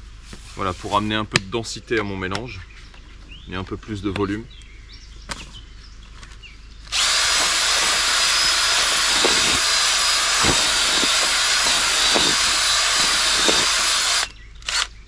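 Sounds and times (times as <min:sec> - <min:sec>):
cordless drill running: 0:06.9 - 0:15.0.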